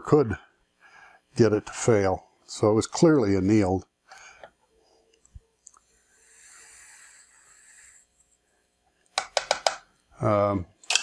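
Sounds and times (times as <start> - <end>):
soft hiss: 0.3 - 9.2.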